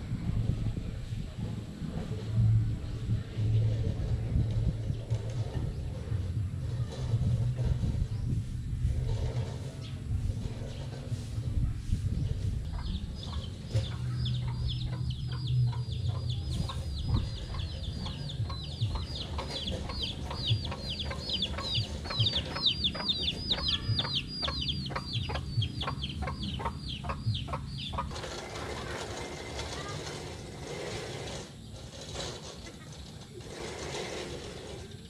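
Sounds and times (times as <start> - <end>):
wind rumble on microphone: 0.0 - 35.0
chicks peeping: 3.8 - 30.0.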